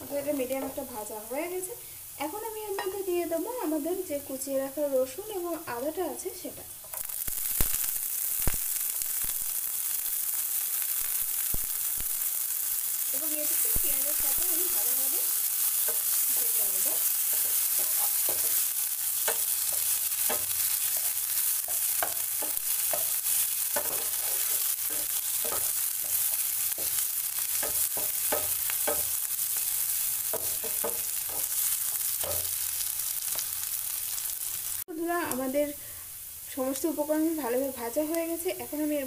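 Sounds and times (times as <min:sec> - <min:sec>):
food sizzling in oil: 0:00.0 - 0:39.0
wooden spatula scraping pan: 0:15.9 - 0:18.7, 0:19.3 - 0:27.0.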